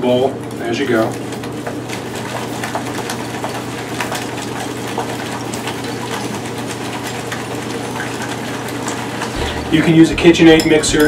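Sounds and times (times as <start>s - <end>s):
steady low hum: 9.3s - 11.0s
whisk clattering against glass bowl: 9.4s - 11.0s.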